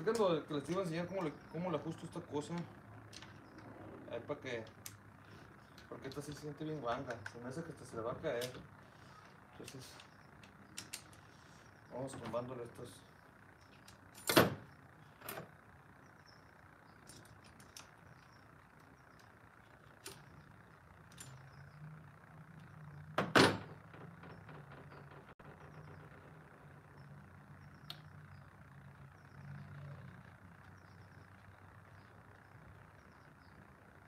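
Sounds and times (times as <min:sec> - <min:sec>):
faint low hum: 0:00.0 - 0:34.0.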